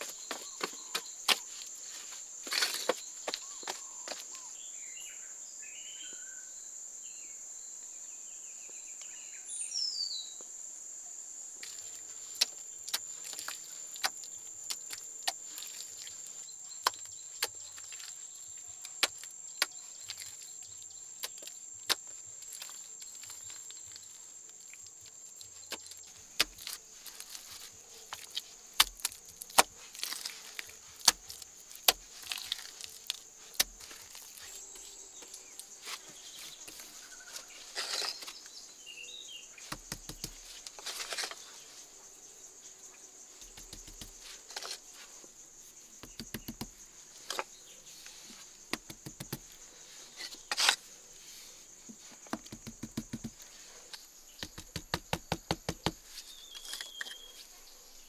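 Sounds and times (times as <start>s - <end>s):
hands patting wet mud: 25.6s - 34.8s, 39.6s - 41.3s, 43.4s - 44.8s, 46.0s - 47.5s, 48.3s - 49.6s, 52.0s - 53.6s, 54.4s - 56.8s.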